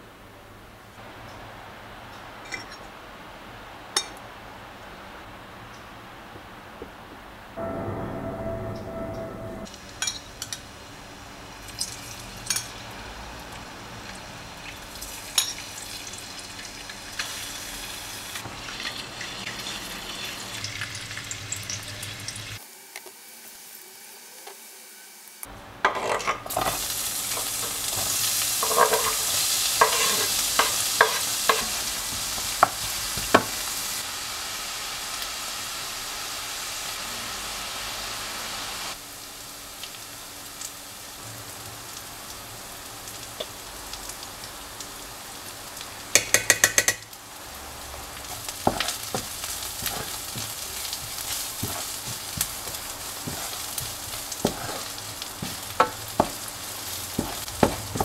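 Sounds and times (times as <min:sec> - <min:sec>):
onion sizzling: 0:07.6 - 0:58.0
eggs frying in oil: 0:09.8 - 0:23.8, 0:25.8 - 0:58.0.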